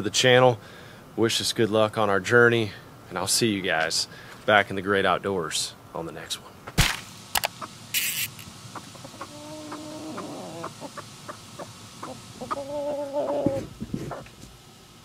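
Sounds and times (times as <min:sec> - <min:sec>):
chickens clucking: 0:07.4 - 0:07.8, 0:08.5 - 0:14.4.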